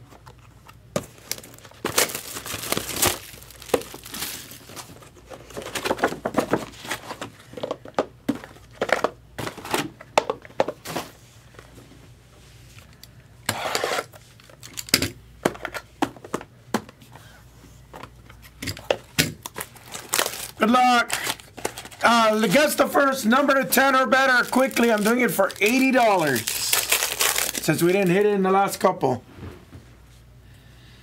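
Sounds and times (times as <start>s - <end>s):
plastic wrapping crinkling and tearing: 1.1s - 7.3s, 19.4s - 28.3s.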